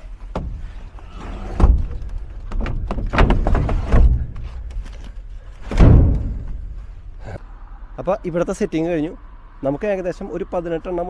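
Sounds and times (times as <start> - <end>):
wooden pallets knocking and scraping: 0.0 - 7.0.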